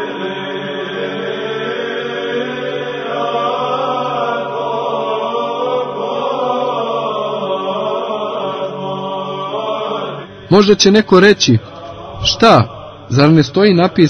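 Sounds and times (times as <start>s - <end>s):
voices chanting long notes: 0.0s - 14.0s
steady low drone: 10.2s - 14.0s.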